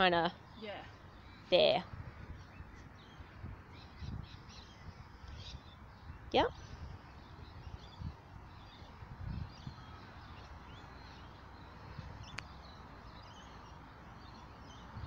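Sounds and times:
faint distant bird calls: 0.0 - 15.0.

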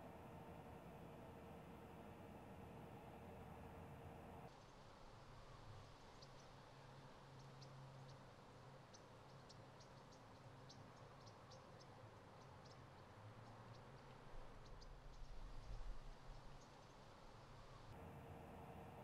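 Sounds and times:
faint low hum: 0.0 - 4.5, 17.5 - 19.0.

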